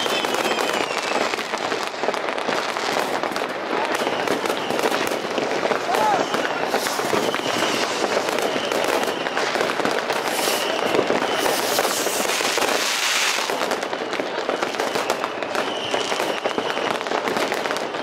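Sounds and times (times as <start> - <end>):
whistling rocket: 0.0 - 2.2, 3.7 - 18.0
fireworks crackling and banging: 0.0 - 18.0
rushing hiss: 10.2 - 13.4.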